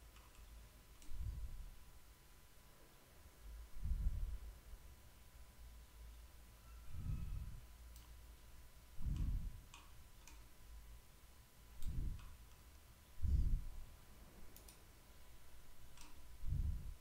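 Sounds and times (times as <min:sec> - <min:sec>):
computer mouse clicks: 0:00.1 - 0:01.2, 0:07.9 - 0:08.2, 0:09.1 - 0:10.5, 0:11.8 - 0:12.8, 0:14.5 - 0:14.9, 0:15.9 - 0:16.2
dull low thumps: 0:03.8 - 0:04.5, 0:09.0 - 0:09.6, 0:11.8 - 0:12.2, 0:13.2 - 0:13.8, 0:16.4 - 0:17.0.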